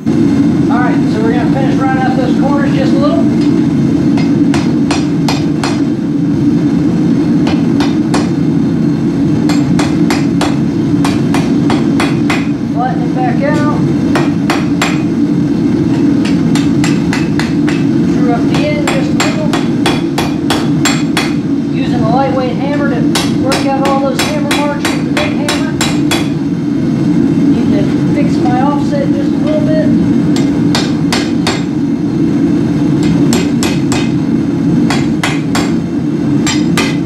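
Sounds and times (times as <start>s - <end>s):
forge burner roar: 0.0s - 37.0s
hammer striking steel on anvil: 4.1s - 5.9s, 7.4s - 8.4s, 9.5s - 12.6s, 14.1s - 15.2s, 15.9s - 21.4s, 23.1s - 26.4s, 30.3s - 31.8s, 33.0s - 34.2s, 34.9s - 35.8s, 36.4s - 37.0s.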